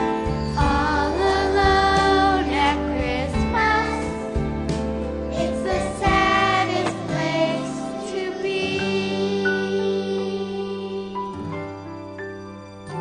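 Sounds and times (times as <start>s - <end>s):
instrumental accompaniment: 0.0s - 10.1s
girl singing with vibrato: 5.4s - 11.2s.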